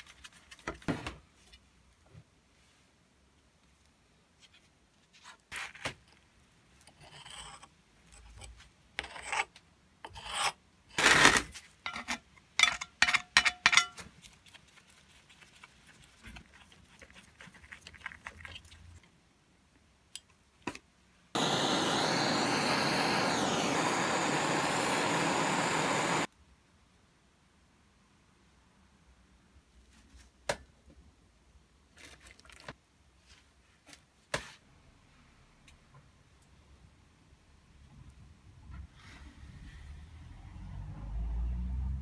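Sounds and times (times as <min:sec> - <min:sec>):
blowtorch flame hissing: 0:21.4 - 0:26.3.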